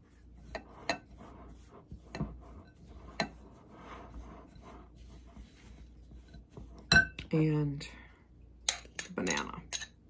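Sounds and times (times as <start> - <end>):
spatula scraping a glass bowl: 0.0 - 6.9.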